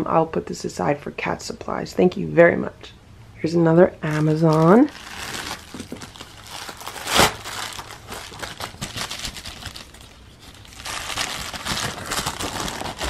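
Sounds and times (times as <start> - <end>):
plastic mailer crinkling: 4.0 - 13.0.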